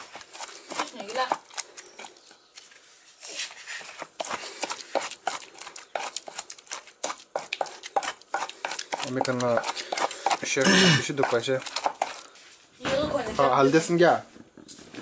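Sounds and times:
pestle pounding in mortar: 4.2s - 12.3s.

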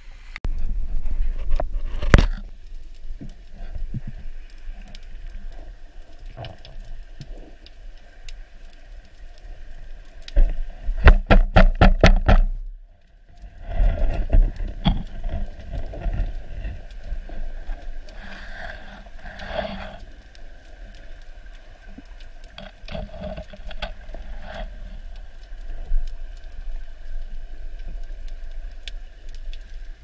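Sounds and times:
low rumble of moving water: 0.0s - 30.0s
underwater water rush: 0.0s - 30.0s
faint clicks: 1.6s - 11.2s, 12.9s - 30.0s
strong thumps: 11.0s - 12.6s.

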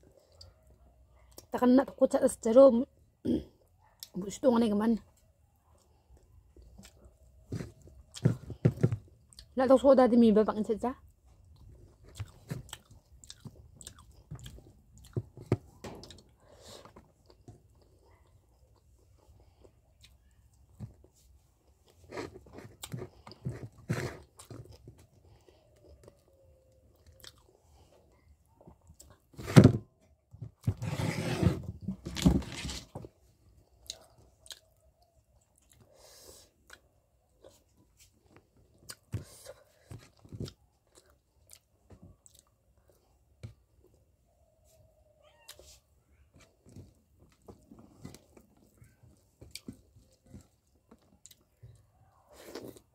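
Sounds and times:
person chewing and crunching: 11.4s - 20.4s, 21.6s - 27.6s, 33.7s - 37.6s, 38.6s - 39.4s, 40.1s - 43.1s, 49.4s - 52.9s.

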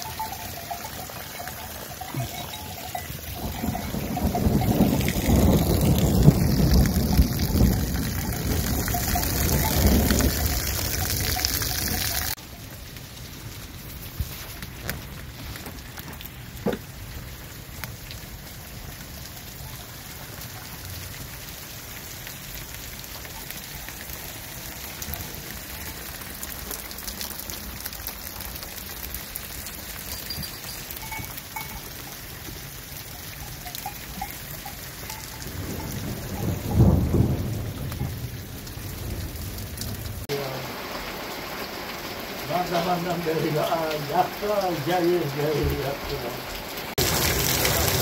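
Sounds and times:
heavy rain pouring: 0.0s - 48.0s
low rumble of thunder: 3.3s - 12.1s, 35.3s - 40.3s.

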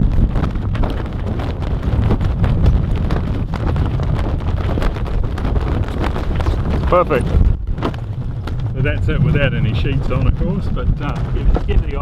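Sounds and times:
sail flapping and knocking: 0.0s - 12.0s
wind buffeting microphone: 0.0s - 12.0s.

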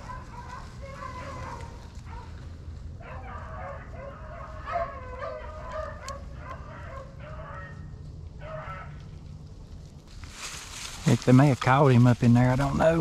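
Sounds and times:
hounds baying: 0.0s - 9.2s
steady low rumble: 0.0s - 13.0s.

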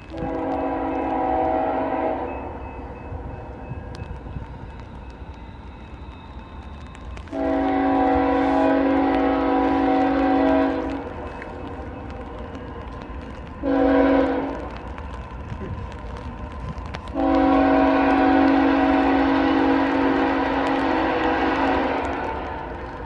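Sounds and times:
locomotive air horn blasts: 0.1s - 2.4s, 7.3s - 11.1s, 13.6s - 14.7s, 17.1s - 22.7s.

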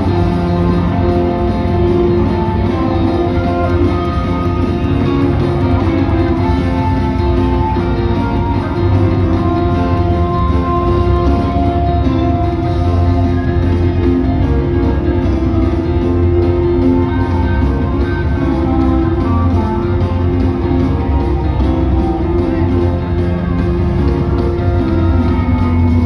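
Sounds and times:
live rock band: 0.0s - 26.0s.

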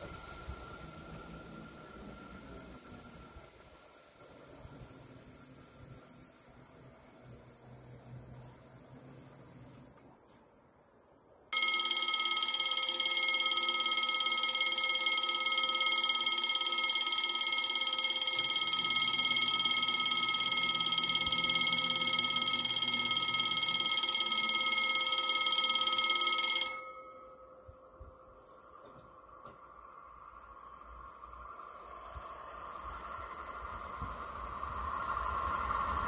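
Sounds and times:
level crossing bell ringing: 11.5s - 28.5s.

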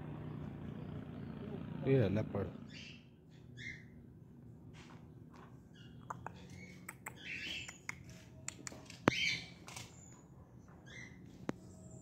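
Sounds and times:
bird squawks and chirps: 2.6s - 4.0s, 5.7s - 8.2s, 9.0s - 10.1s, 10.8s - 11.4s
sharp clicks: 6.1s - 9.9s.

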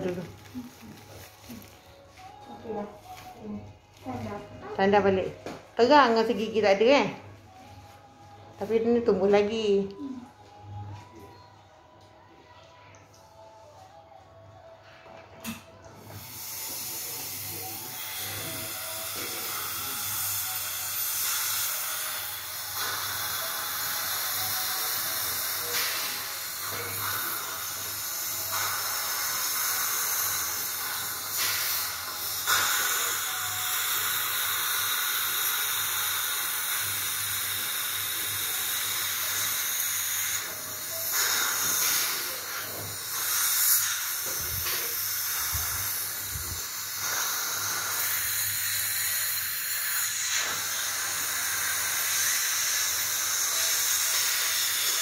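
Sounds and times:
dental suction hose hissing: 15.4s - 55.0s.

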